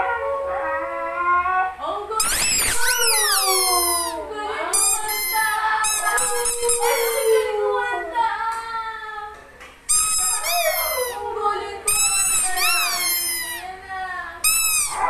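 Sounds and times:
dog howling: 0.0s - 1.8s, 2.5s - 8.4s, 10.2s - 13.6s, 14.7s - 15.0s.

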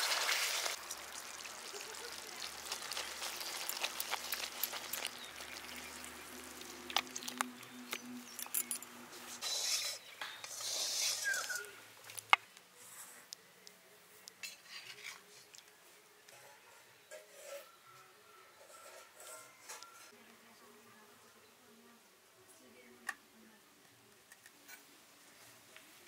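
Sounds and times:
spoon scraping metal pan: 3.0s - 11.7s, 16.3s - 17.8s, 18.6s - 20.1s
metal clinks: 8.0s - 9.0s.

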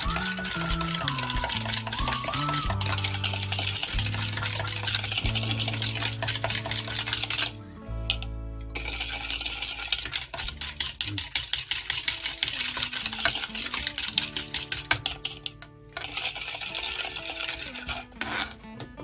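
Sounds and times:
wire whisk beating in plastic bowl: 0.0s - 8.2s, 8.8s - 18.6s.

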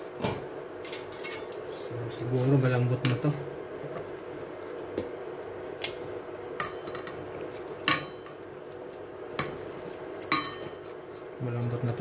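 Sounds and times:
low background hum: 0.0s - 12.0s
metal tongs clinking on pot: 10.2s - 10.8s.

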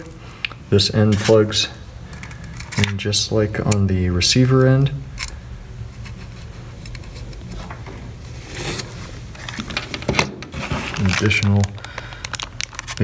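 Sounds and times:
low steady hum: 0.0s - 13.0s
packaging rustling: 8.3s - 13.0s.

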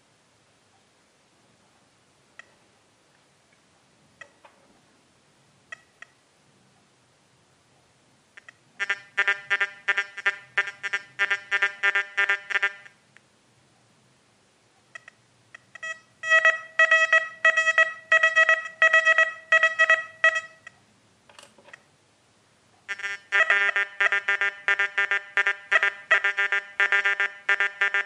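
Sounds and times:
metal detector beeps: 15.0s - 20.8s.

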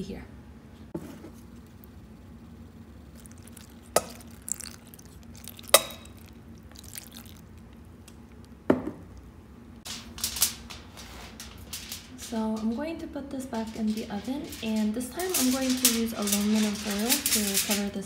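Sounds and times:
steady low hum: 0.0s - 18.0s
liquid dripping onto wet fabric: 3.1s - 8.6s
glass clinking on steel: 3.2s - 6.3s.

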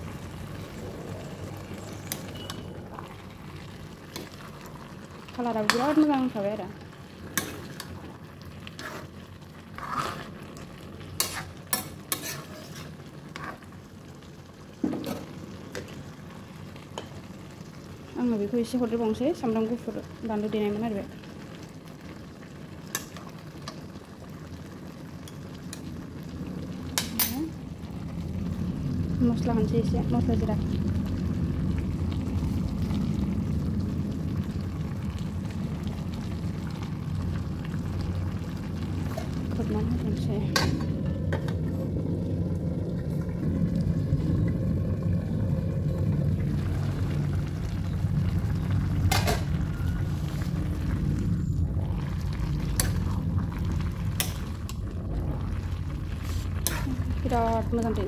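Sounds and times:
curry cooking hiss: 0.0s - 17.4s, 45.1s - 58.0s
spoon scraping and knocking a pan: 11.2s - 13.6s.

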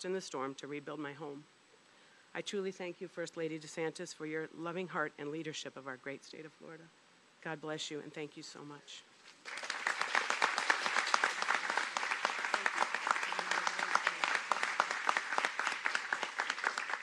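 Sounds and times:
audience applauding: 9.4s - 17.0s.

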